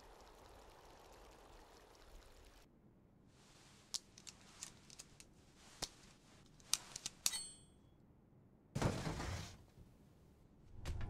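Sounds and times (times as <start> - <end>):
high metallic blade ring: 7.3 - 7.9.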